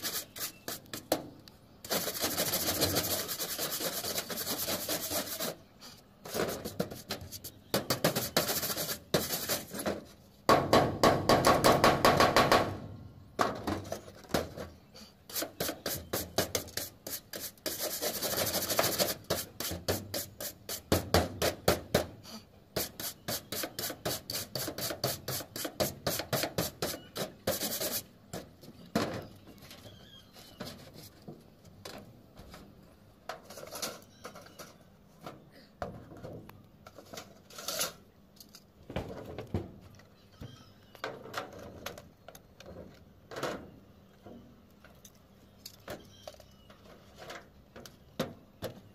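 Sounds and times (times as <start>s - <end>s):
wire brush scrubbing metal: 0.0s - 1.1s, 1.8s - 5.6s, 6.3s - 10.1s, 15.3s - 21.0s, 22.8s - 28.1s.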